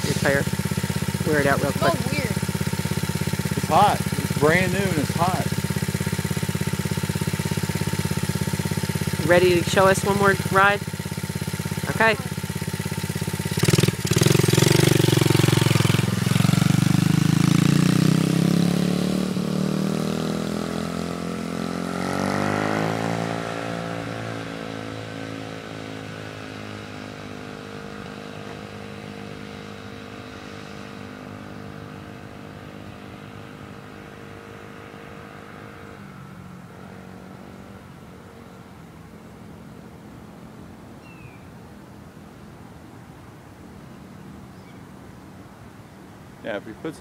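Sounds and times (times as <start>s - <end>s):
dirt bike engine revving: 0.0s - 29.9s.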